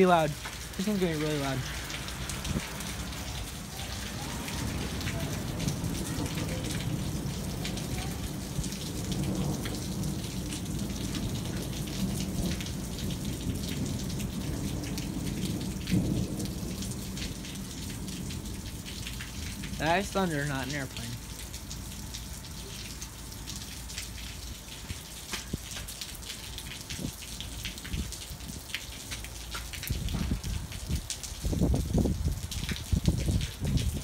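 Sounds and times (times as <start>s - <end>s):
steady rain patter: 0.0s - 34.0s
water dripping: 0.0s - 34.0s
thunder rumbling: 0.7s - 20.2s.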